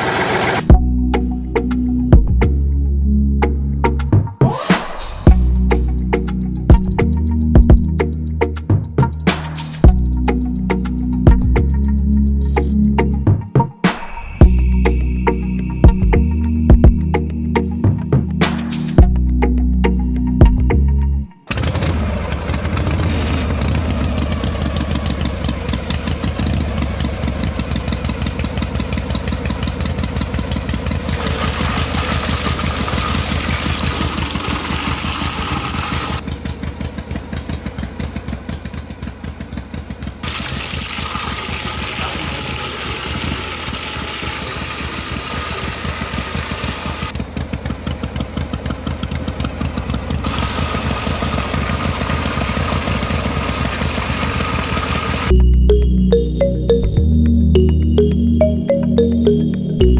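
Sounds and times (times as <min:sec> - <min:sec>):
model engine running: 0:00.0 - 0:00.7, 0:21.5 - 0:55.3.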